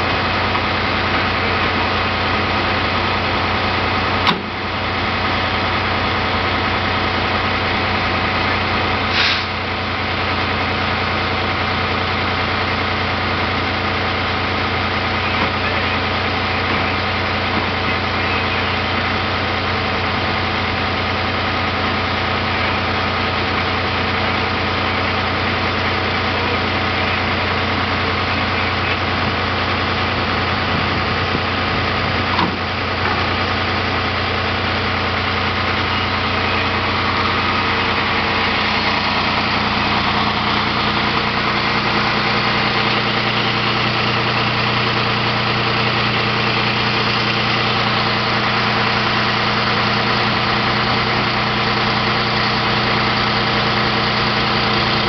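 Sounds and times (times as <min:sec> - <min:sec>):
diesel engine idling: 0:00.0 - 0:55.0
short hiss: 0:09.1 - 0:09.6.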